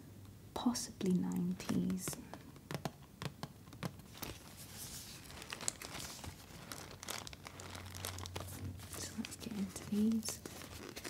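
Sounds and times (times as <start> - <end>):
cardboard box rustling: 3.8 - 11.0.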